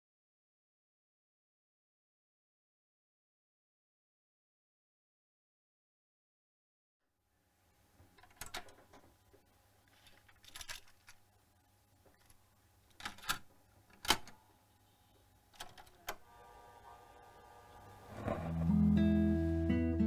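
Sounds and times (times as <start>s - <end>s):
faint hum: 7.1s - 20.0s
small mechanical clicks and knocks: 12.1s - 14.4s, 15.5s - 16.2s
guitar music from a stereo: 18.1s - 20.0s.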